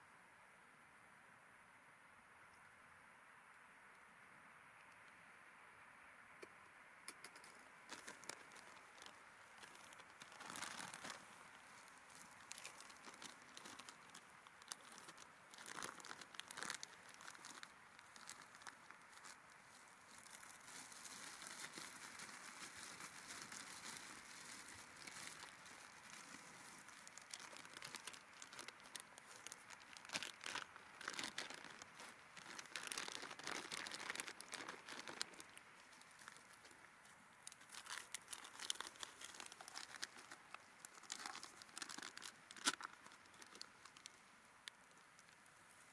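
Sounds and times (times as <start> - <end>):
rustling and crinkling: 7.1 - 45.9.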